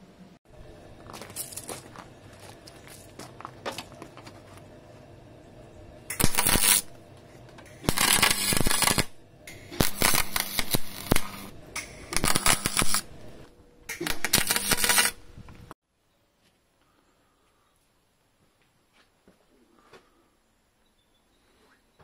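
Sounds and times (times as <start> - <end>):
welder arc crackling: 6.1 - 7.0, 7.6 - 15.7.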